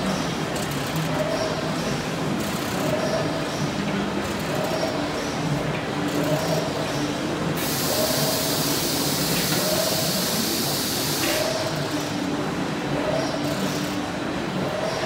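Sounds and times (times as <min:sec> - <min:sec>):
steady loud hiss: 0:06.8 - 0:12.9
wire mesh weaving machine running: 0:07.6 - 0:15.0.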